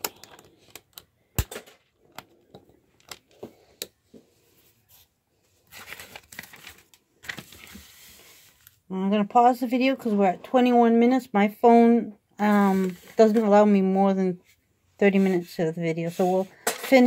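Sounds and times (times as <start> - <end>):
rustling handling noise: 1.7 - 8.9, 14.4 - 17.0.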